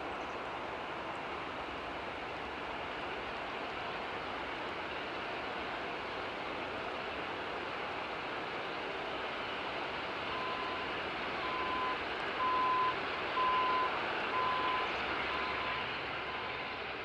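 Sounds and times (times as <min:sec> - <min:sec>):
reversing alarm beeping: 0:10.3 - 0:16.6.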